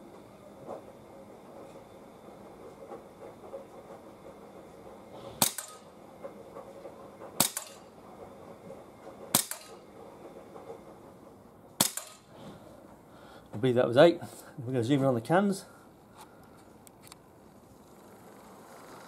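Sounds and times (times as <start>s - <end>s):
air pistol shots: 5.4s - 5.8s, 7.4s - 7.8s, 9.3s - 9.8s, 11.8s - 12.3s.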